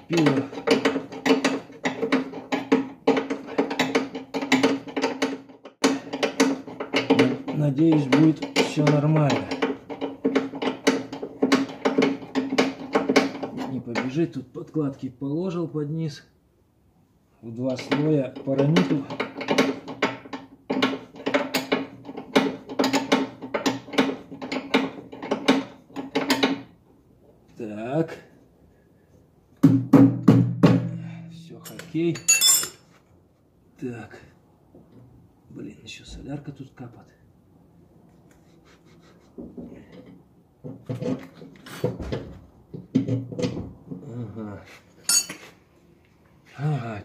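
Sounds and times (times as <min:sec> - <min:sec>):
metallic clinks of hand tools: 0:45.1 - 0:45.4.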